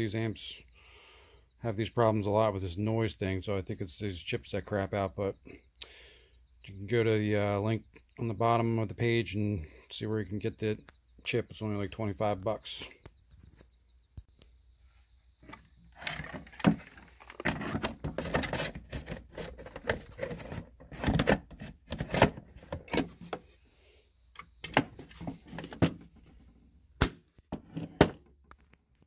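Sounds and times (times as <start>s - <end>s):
handling rustling and shuffling: 14.8s - 23.6s, 24.4s - 26.7s.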